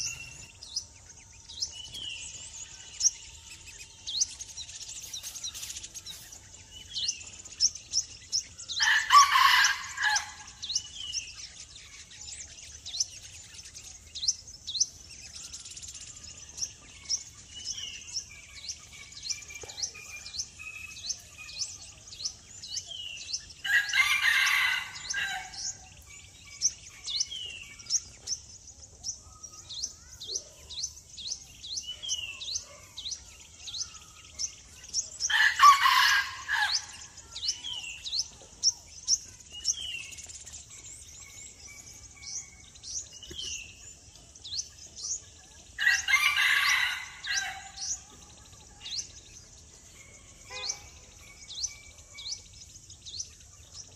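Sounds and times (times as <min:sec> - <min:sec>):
small birds chirping: 0:00.0 - 0:53.9
rooster crowing: 0:08.8 - 0:10.4.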